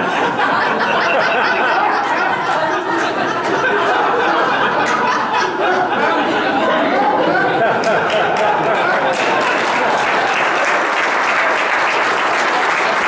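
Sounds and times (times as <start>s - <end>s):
murmured chatter: 0.0s - 10.3s
audience laughing: 0.0s - 13.0s.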